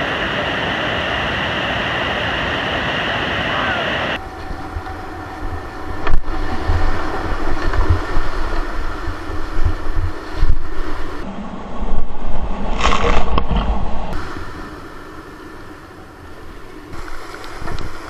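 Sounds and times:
whitewater rushing and splashing: 0.0 - 11.2
water buffeting microphone: 0.0 - 18.0.

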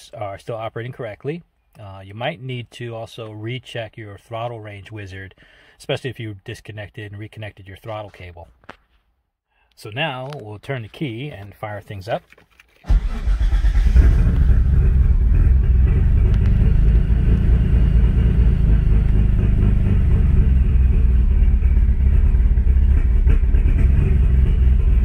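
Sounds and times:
engine starting and idling: 12.8 - 25.0.

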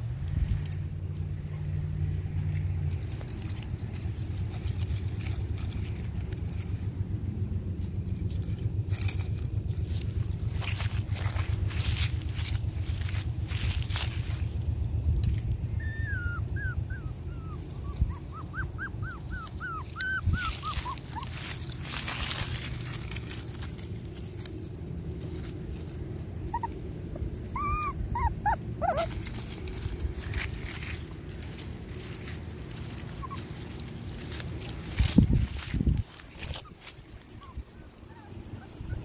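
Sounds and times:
low rumble: 0.0 - 39.0
rustling: 0.0 - 39.0
puppies whimpering and yipping: 15.5 - 23.8, 25.8 - 39.0.

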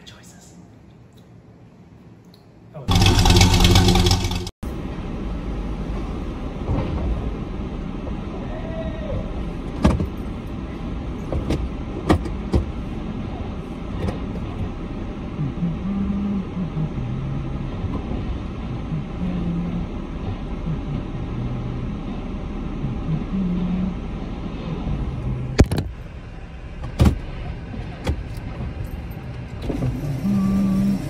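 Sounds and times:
vehicle engine rumbling: 2.8 - 31.0
loud burst of steady tones: 2.9 - 4.5.

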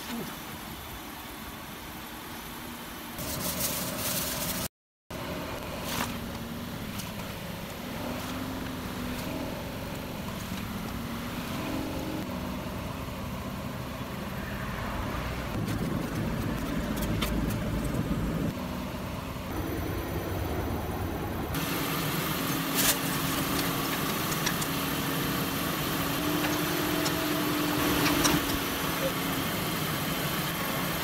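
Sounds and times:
aluminium foil crinkling: 3.2 - 4.7
car engine idling: 5.1 - 31.0.

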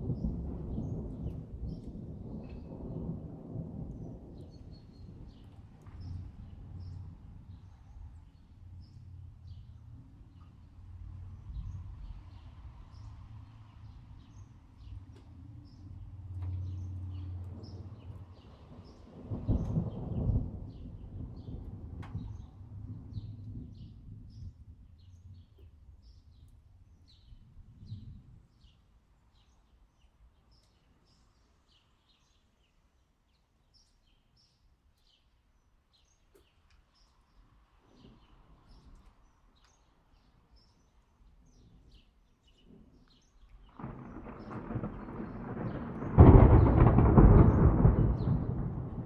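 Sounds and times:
thunder rumbling: 0.0 - 10.2, 10.8 - 25.6, 42.6 - 49.0.

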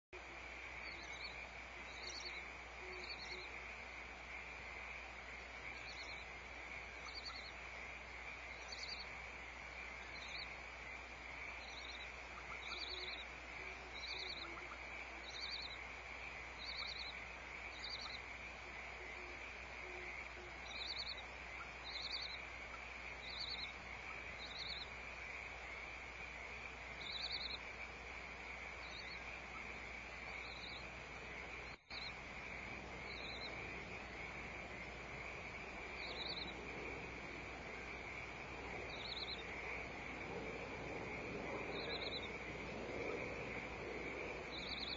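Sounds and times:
high-pitched hiss: 0.2 - 44.9
low hum: 0.2 - 44.9.

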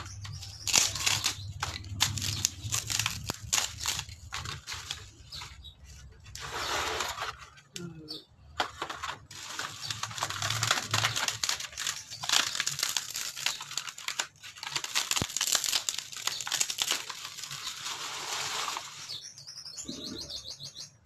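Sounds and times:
ceiling board crackling and tearing: 0.0 - 7.9, 8.6 - 19.3.

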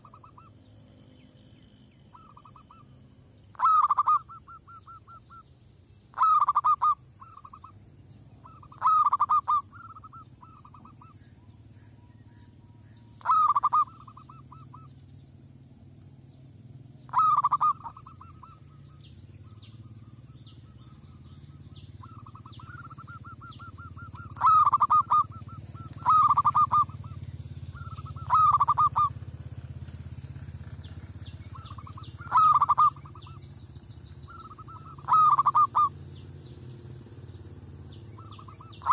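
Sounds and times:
dove cooing: 0.0 - 0.6, 2.1 - 2.9, 3.5 - 5.4, 6.1 - 7.8, 8.4 - 11.2, 13.2 - 15.0, 17.1 - 29.3, 31.5 - 33.5, 34.2 - 36.2, 37.8 - 38.9.

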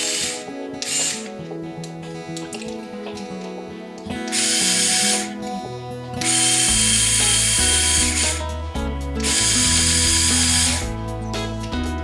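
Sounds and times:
small electric motor and gears whirring: 0.0 - 1.3, 4.3 - 5.4, 6.2 - 8.4, 9.2 - 10.9
background music with bass line: 0.0 - 12.0.

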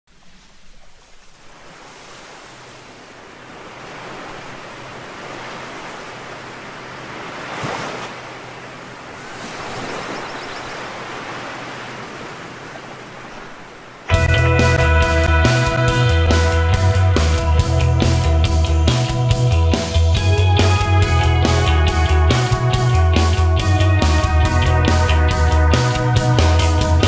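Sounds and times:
ocean surf washing onto beach: 0.1 - 14.2
loud music: 14.1 - 27.0.

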